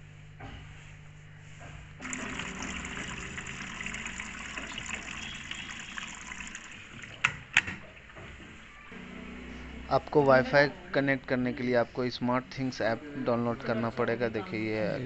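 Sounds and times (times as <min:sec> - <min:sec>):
water pouring into washing machine: 0:02.0 - 0:08.1.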